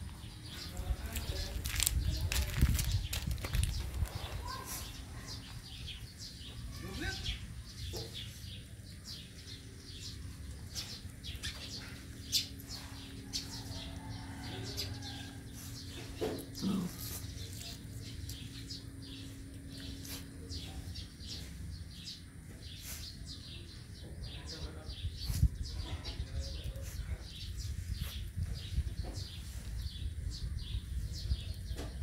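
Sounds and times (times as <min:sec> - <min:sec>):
small birds chirping: 0:00.0 - 0:32.0
steady low hum: 0:07.4 - 0:32.0.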